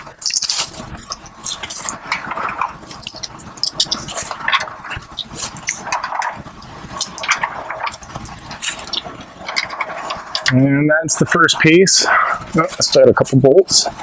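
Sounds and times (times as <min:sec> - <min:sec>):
rustling: 0:00.0 - 0:10.6
small metal hardware clinking: 0:00.2 - 0:00.8, 0:02.8 - 0:04.2, 0:10.4 - 0:10.6.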